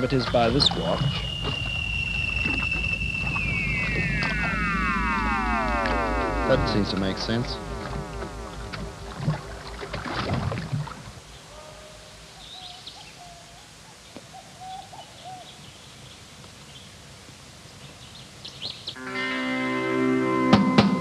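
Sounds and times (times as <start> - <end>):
high bird chirps: 0.0 - 6.5
warbling electronic tones: 0.0 - 11.2
short wavering calls: 0.0 - 15.9
faint outdoor ambience: 0.0 - 21.0.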